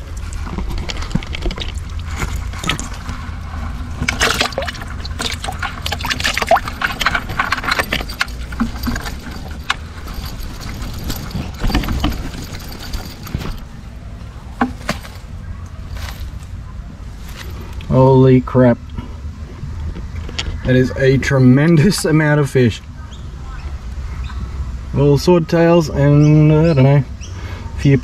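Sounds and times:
net rustling: 0.0s - 14.0s
water splashing and dripping: 3.8s - 8.6s.

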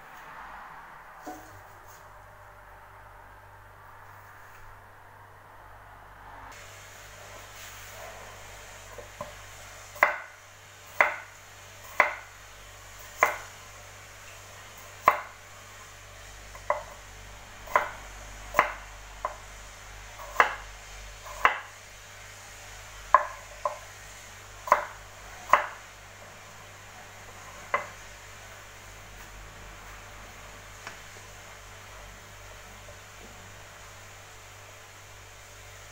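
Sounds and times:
knife chopping on cutting board: 10.0s - 10.3s, 11.0s - 12.3s, 13.1s - 13.5s, 15.0s - 15.4s, 16.5s - 17.0s, 17.7s - 19.4s, 20.2s - 20.6s, 21.2s - 21.7s, 23.1s - 23.9s, 24.6s - 25.8s, 27.3s - 28.0s.

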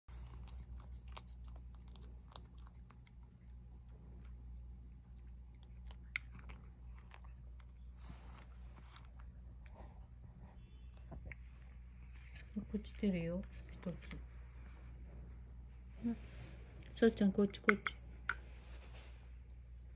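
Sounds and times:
cat chewing dry kibble: 0.1s - 10.0s.

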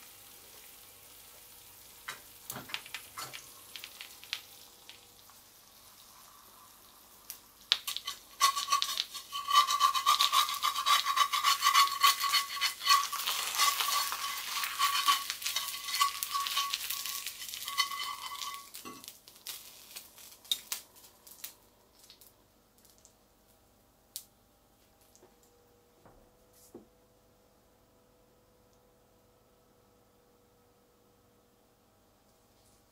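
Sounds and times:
egg sizzling: 0.0s - 22.3s
metal spatula scraping skillet: 7.9s - 19.1s.

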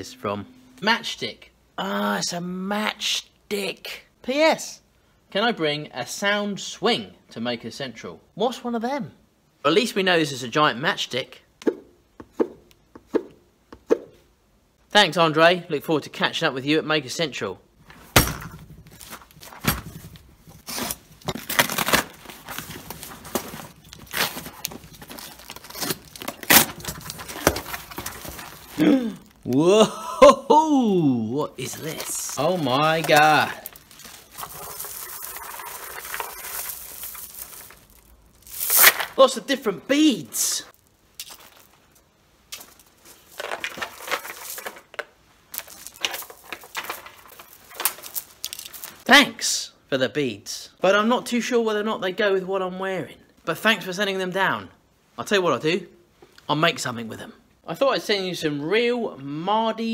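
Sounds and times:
plastic beads clattering: 31.6s - 39.2s, 40.7s - 49.0s
craft knife slitting paper and tape: 31.7s - 39.2s.

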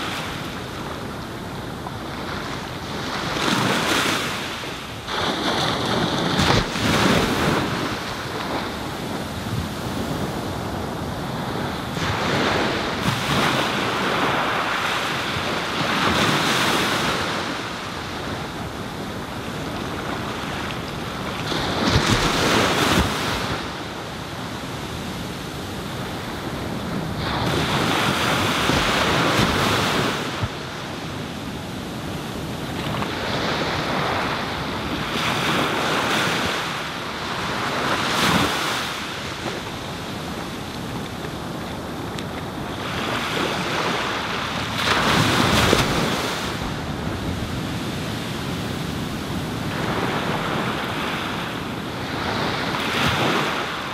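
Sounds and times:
small waves breaking on beach: 0.0s - 53.9s.

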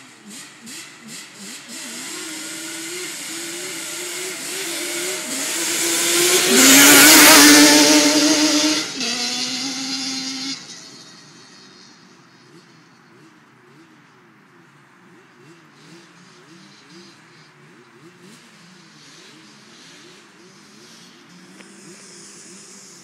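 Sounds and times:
quad engines revving: 0.0s - 23.0s.

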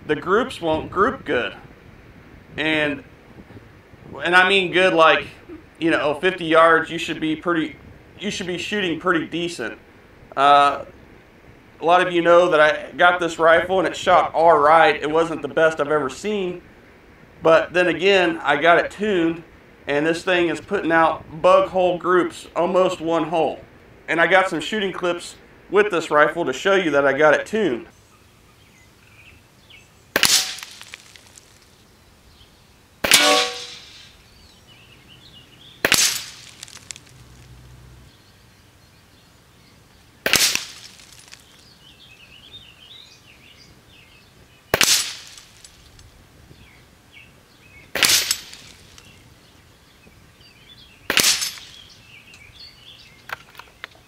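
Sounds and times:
rifle shots: 30.1s - 31.1s, 33.0s - 34.2s, 35.8s - 36.8s, 40.2s - 41.0s, 44.7s - 45.6s, 47.9s - 49.0s, 51.1s - 51.8s
metallic ringing: 33.1s - 34.1s.

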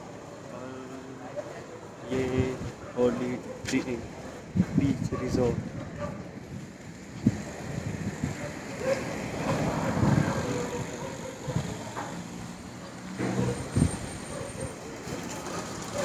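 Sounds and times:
street traffic: 0.0s - 16.0s
vehicle engine: 8.4s - 16.0s.

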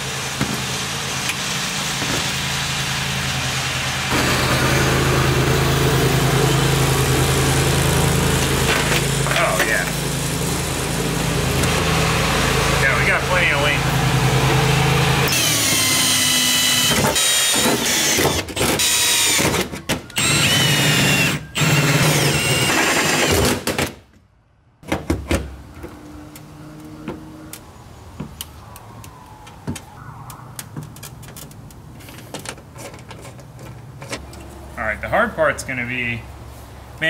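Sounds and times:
power drill boring into metal: 15.3s - 19.6s, 20.2s - 23.6s.

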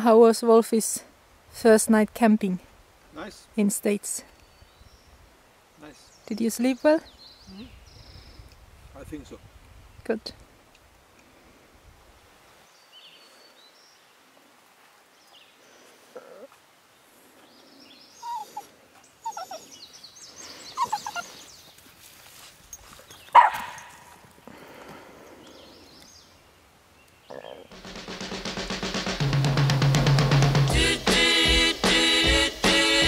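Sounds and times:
faint bird chirps: 5.8s - 8.5s, 17.4s - 21.8s, 27.0s - 27.7s
small dog barking: 23.3s - 24.1s.

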